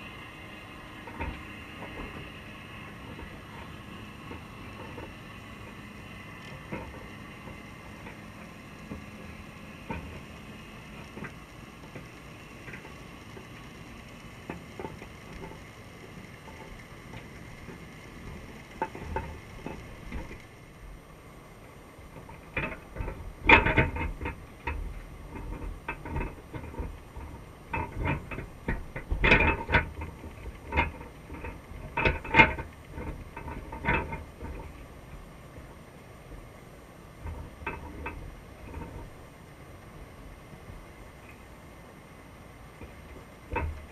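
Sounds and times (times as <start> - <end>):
faint steady hum: 0.0 - 43.9.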